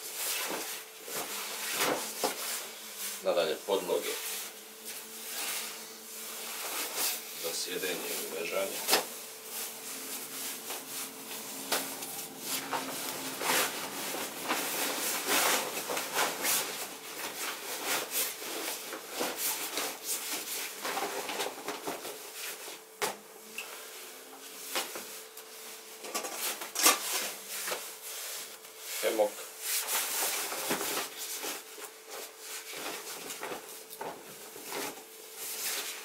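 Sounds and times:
fabric and gear rustling: 3.9s - 22.3s.

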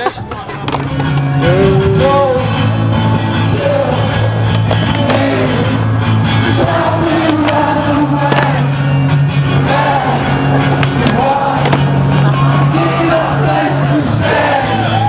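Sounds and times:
sustained bass line: 0.0s - 15.0s
song with sung melody: 0.8s - 15.0s.

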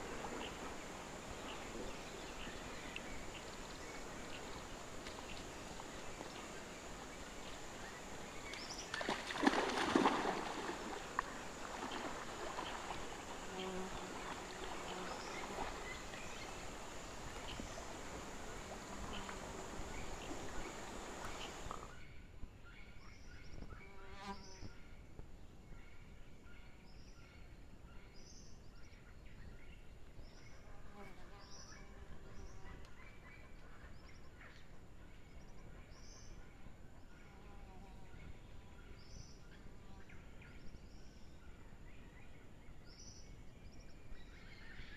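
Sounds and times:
background hiss: 0.0s - 22.0s.

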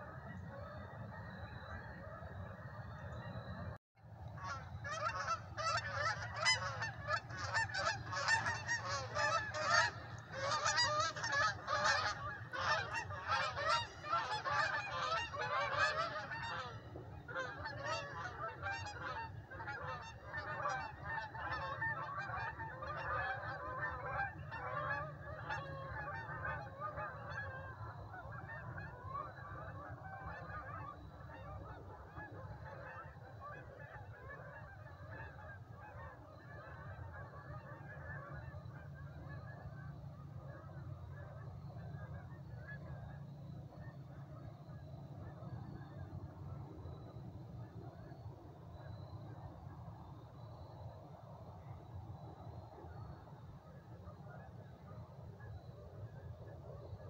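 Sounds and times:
geese honking: 4.3s - 47.0s.

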